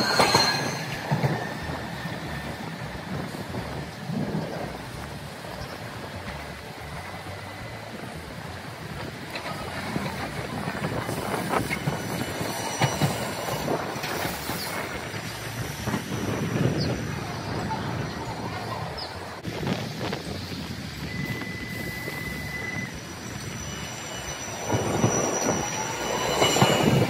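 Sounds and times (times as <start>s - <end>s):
high wheel squeal: 0.0s - 3.0s, 11.0s - 15.4s, 21.0s - 27.0s
streetcar rumble: 0.0s - 27.0s
wheels clicking over rail joints: 8.0s - 22.8s.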